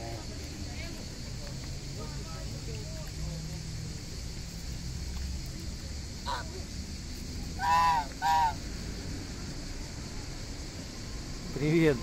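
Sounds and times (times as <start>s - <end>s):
goose honking: 7.6s - 8.6s.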